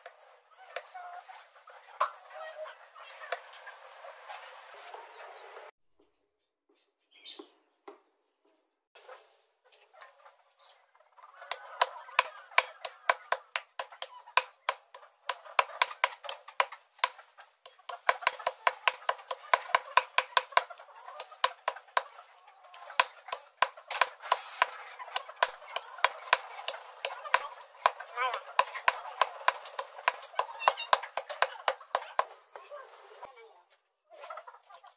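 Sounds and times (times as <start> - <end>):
cleaver chopping on wooden block: 11.5 - 22.2, 22.8 - 32.4.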